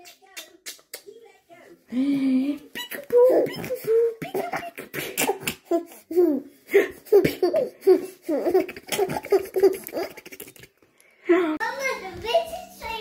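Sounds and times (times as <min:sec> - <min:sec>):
baby laughing: 0:02.6 - 0:10.8.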